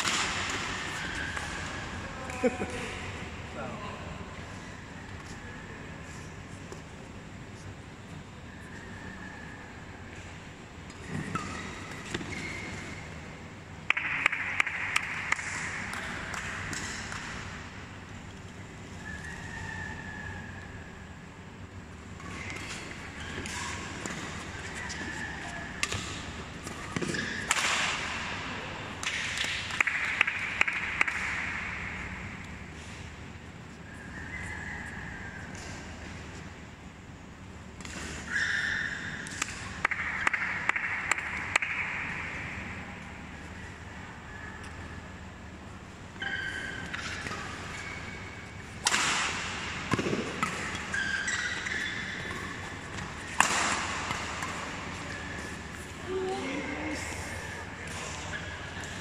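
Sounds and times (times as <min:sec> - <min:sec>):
rackets hitting shuttlecock: 0:00.0 - 0:02.4, 0:13.9 - 0:17.7, 0:22.1 - 0:32.6, 0:37.8 - 0:43.1, 0:46.1 - 0:56.0
shoes squeaking on court: 0:49.8 - 0:56.0.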